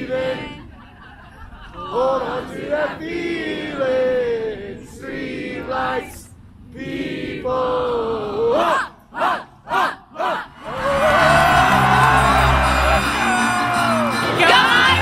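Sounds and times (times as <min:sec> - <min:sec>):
voices singing in unison: 0:00.0 - 0:00.8, 0:01.6 - 0:15.0.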